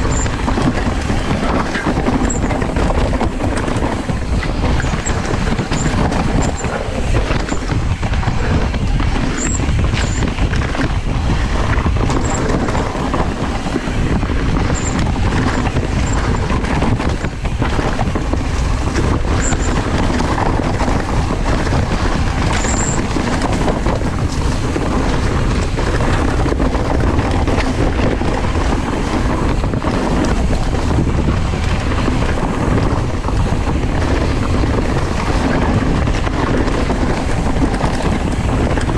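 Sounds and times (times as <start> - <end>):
bike rattling and knocking: 0.0 - 38.9
tyres crunching on dirt trail: 0.0 - 38.9
wind buffeting microphone: 0.0 - 38.9
short high squeaks: 9.4 - 10.2.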